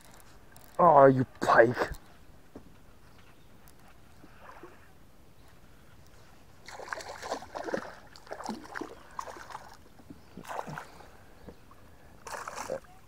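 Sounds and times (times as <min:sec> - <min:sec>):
fish thrashing water: 0:06.6 - 0:09.8.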